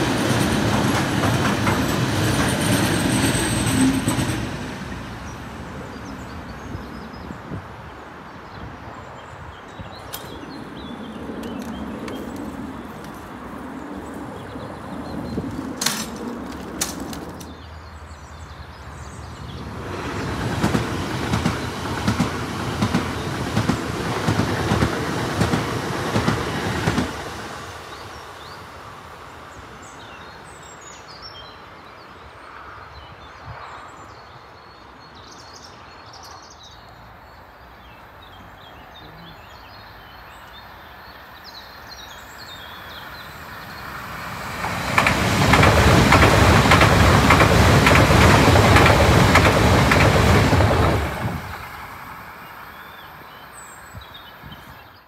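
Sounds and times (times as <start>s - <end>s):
electric train passing: 0.0s - 9.1s, 10.0s - 29.8s, 42.1s - 54.5s
wheels clattering over rail joints: 14.5s - 17.7s, 44.5s - 51.7s.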